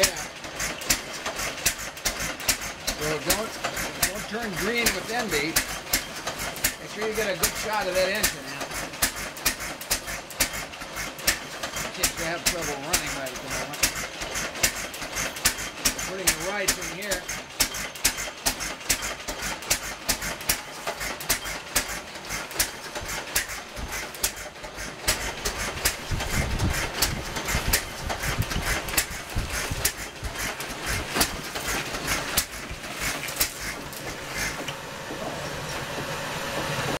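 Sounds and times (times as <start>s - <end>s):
engine sharp clacks: 0.0s - 37.0s
heavy low rumble: 25.3s - 34.3s.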